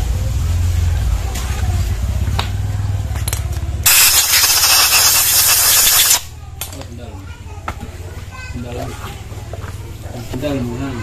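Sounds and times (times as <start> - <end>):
loud pressurised hiss: 3.9 - 6.3.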